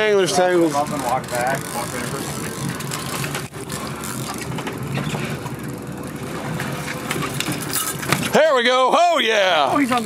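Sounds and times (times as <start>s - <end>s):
boat motor running: 0.0s - 10.0s
water: 0.0s - 10.0s
wind: 0.0s - 10.0s
clicks and knocks from fishing gear: 1.1s - 5.6s.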